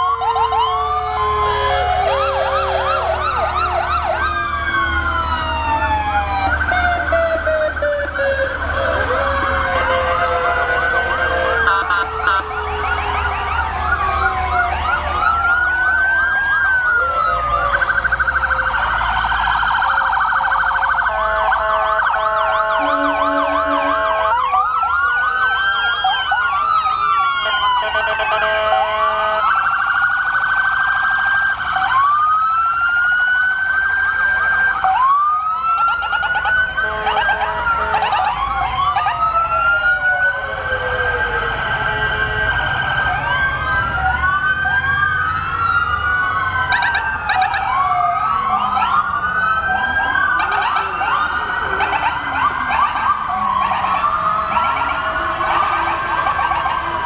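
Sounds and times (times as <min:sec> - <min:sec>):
emergency sirens wailing: 0:00.0 - 0:57.0.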